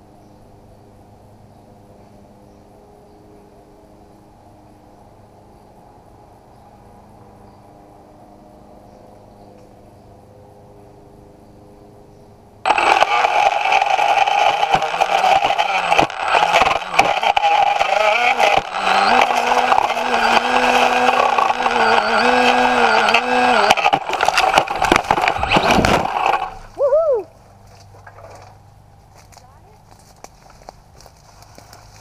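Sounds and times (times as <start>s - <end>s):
propellers clattering against leaves: 12.7s - 26.8s, 27.4s - 32.0s
drone motor whine: 12.7s - 27.2s.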